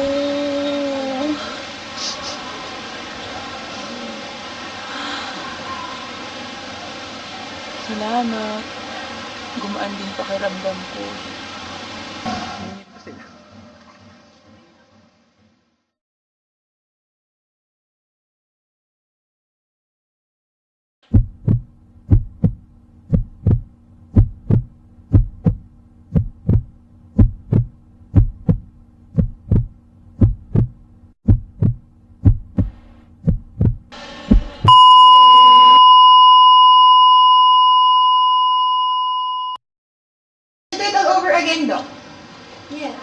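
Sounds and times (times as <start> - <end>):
heartbeat double thump: 21.1 - 34.9
steady electronic beep tone: 34.7 - 39.6.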